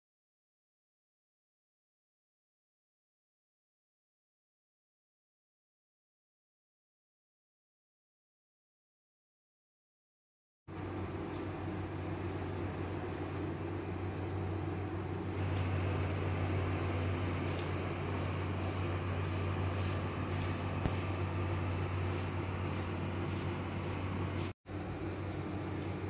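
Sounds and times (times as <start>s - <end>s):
low mechanical hum: 10.7s - 26.0s
noisy background: 10.7s - 26.0s.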